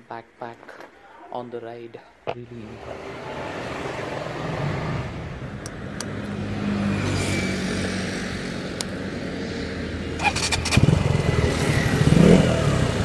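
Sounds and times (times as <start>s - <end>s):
motorcycle engine running: 10.2s - 13.0s.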